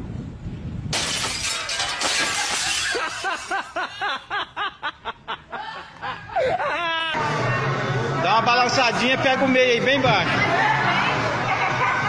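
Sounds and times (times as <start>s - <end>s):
device crashing and smashing: 0.9s - 3.8s
person laughing hard: 2.8s - 7.2s.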